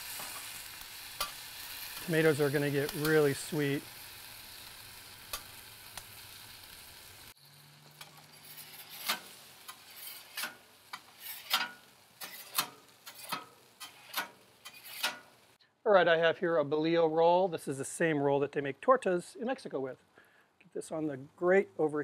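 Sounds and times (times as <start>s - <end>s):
vegetables sizzling on a griddle: 0.0s - 15.6s
metal spatula scraping griddle: 7.4s - 15.5s.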